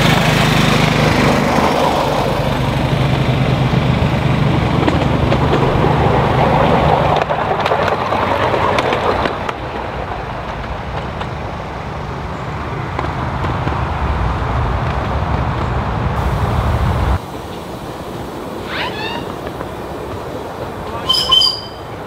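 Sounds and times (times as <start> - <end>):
wheels rumbling on rails: 0.0 - 22.0
sharp clicks of wheels: 4.2 - 15.9.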